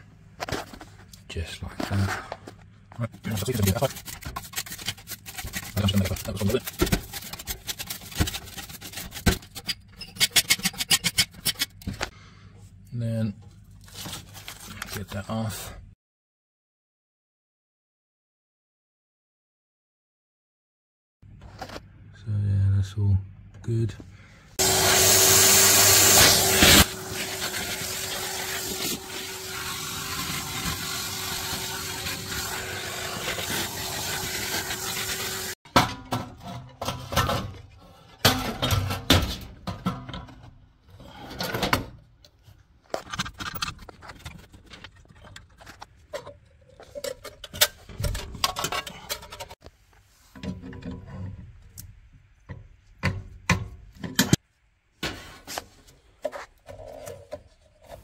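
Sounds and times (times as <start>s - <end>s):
vacuum cleaner running: 24.6s - 35.6s.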